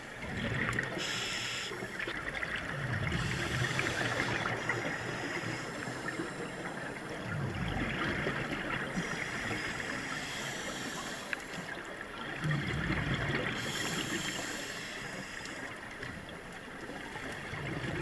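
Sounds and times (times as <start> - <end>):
regulator bubbles rumbling: 0.0 - 1.1, 1.8 - 9.1, 12.1 - 14.0, 17.1 - 18.0
dense underwater crackle: 0.0 - 18.0.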